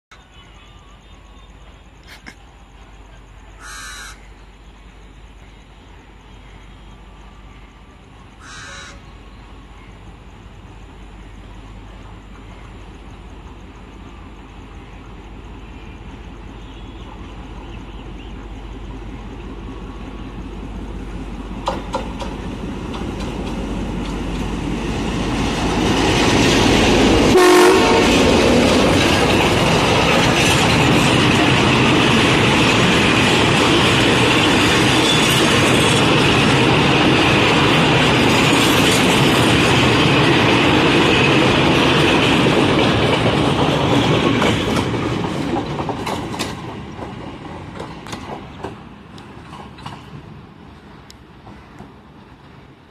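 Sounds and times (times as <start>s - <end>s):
diesel locomotive passing: 0.1s - 52.9s
freight wagons rumbling and clattering: 18.6s - 50.5s.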